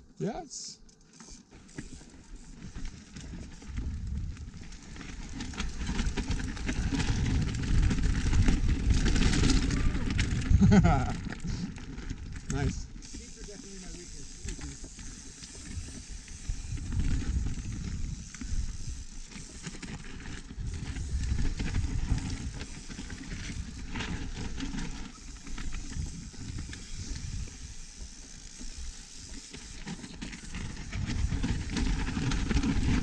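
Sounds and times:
bike clicks and rattles: 0.8s - 33.0s
tyre noise on dirt: 1.5s - 13.4s, 14.3s - 33.0s
wind buffeting microphone: 15.8s - 19.1s.

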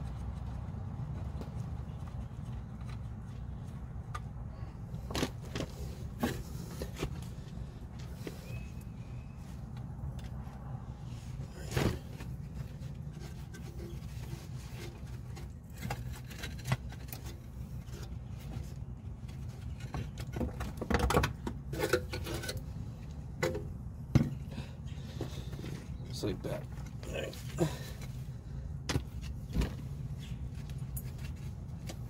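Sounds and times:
metal parts knocking and scraping: 19.3s - 22.6s.

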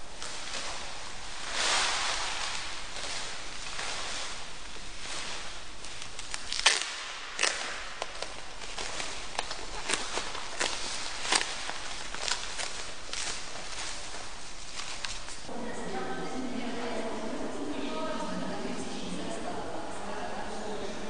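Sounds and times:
plastic wrapping rustling: 0.0s - 15.5s.

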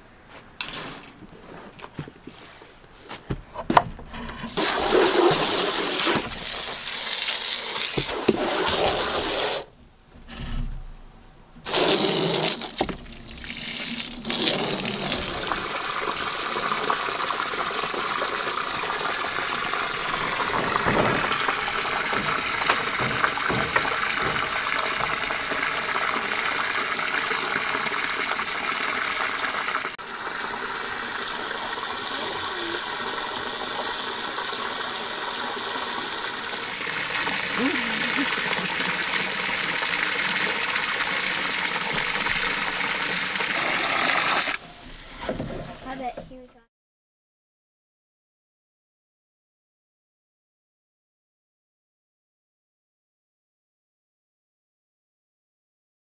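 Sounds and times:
hose water spraying into a tub: 4.4s - 9.8s, 11.6s - 46.4s.

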